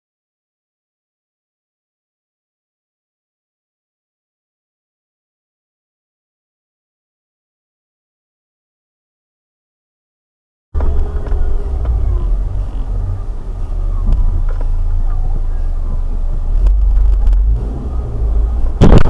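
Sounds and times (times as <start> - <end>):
car engine and road noise: 10.8 - 19.0.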